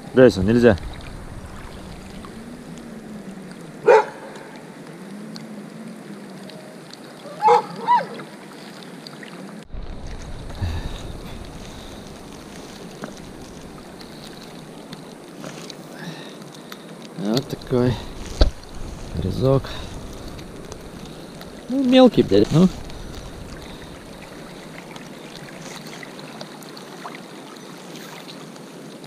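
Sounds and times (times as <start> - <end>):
river water rushing: 0.0 - 29.0
dog barking: 3.8 - 4.4, 7.4 - 8.1.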